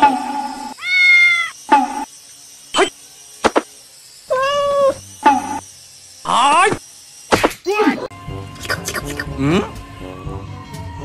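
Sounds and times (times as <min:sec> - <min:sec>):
cat meowing: 0:00.8 - 0:01.6, 0:04.3 - 0:05.0.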